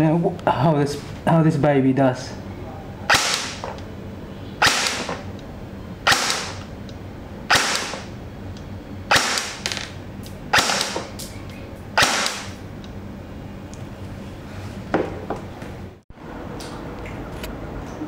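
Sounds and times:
airsoft gun shots: 3.1 - 3.7, 4.6 - 5.2, 6.0 - 6.7, 7.5 - 8.1, 9.1 - 9.8, 10.5 - 11.1, 12.0 - 12.6.

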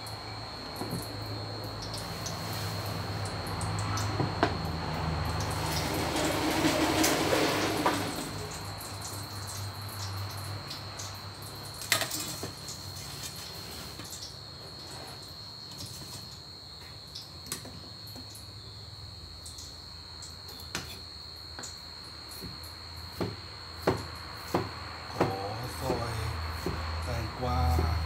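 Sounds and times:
steel bowl set down: 5.5 - 8.6
high-pitched whine: 24.8 - 28.0.

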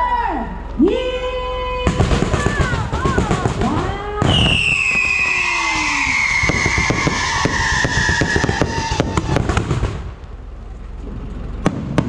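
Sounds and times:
fireworks whistling: 1.9 - 10.2
fireworks crackling and popping: 1.9 - 10.4, 11.0 - 12.0
loud firework burst: 4.2 - 10.2, 11.6 - 12.0.

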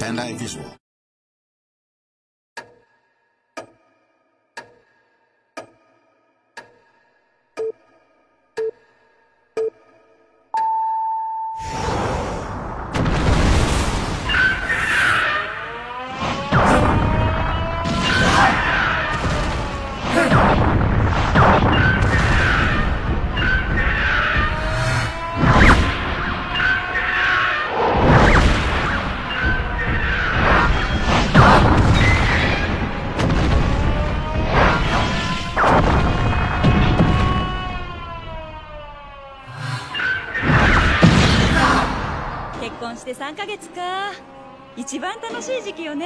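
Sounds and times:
heavy booms and crashes: 11.7 - 14.8, 16.4 - 26.5, 27.9 - 37.5
dramatic music: 13.9 - 37.2, 39.6 - 46.0
background music: 42.6 - 46.0.

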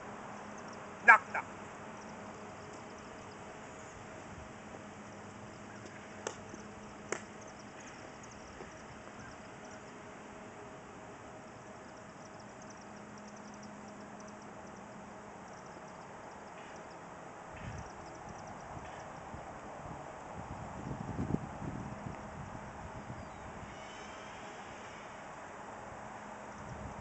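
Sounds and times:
outdoor background noise: 0.0 - 27.0
faint high chirping: 11.5 - 17.1, 17.7 - 19.1.

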